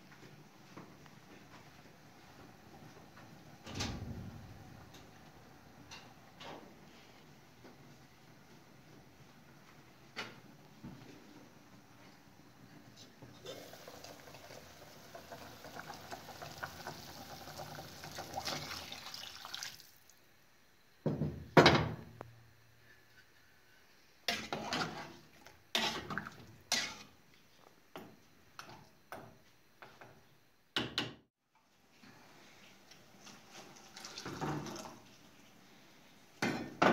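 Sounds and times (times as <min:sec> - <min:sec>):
liquid splashing: 0:18.4 - 0:20.0.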